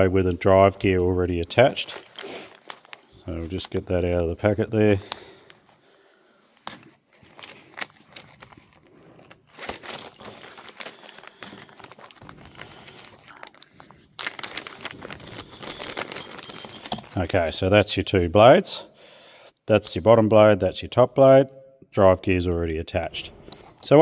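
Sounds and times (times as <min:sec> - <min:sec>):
plastic bag crinkling: 0:00.9 - 0:03.9, 0:07.0 - 0:17.2.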